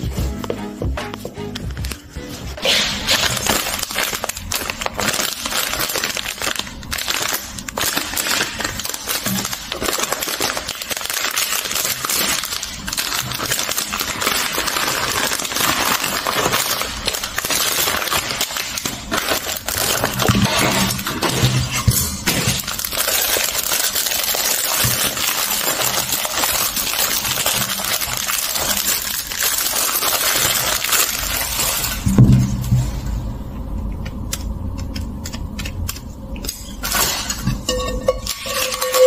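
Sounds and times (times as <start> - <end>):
plastic packaging crinkling: 1.6 - 32.8.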